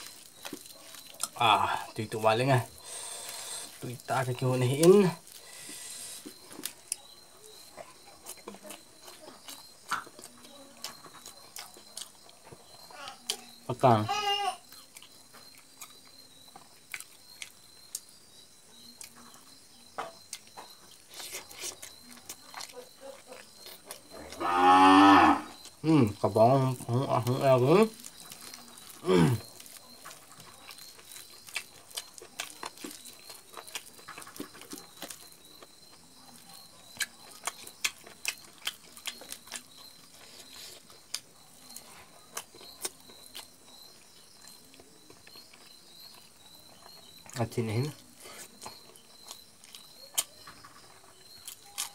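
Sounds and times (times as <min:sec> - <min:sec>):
wet eating clicks and smacks: 0:00.0 - 0:01.5, 0:14.7 - 0:18.1, 0:26.8 - 0:51.9.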